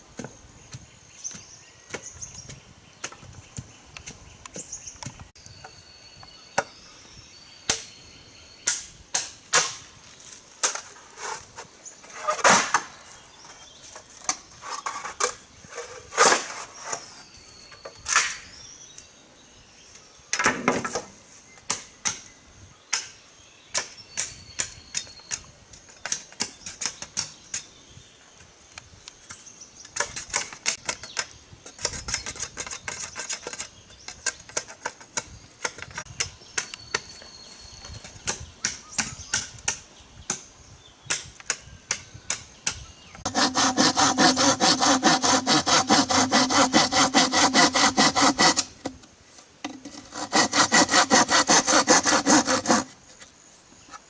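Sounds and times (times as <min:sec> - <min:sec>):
machete striking bamboo: 0:08.6 - 0:09.9.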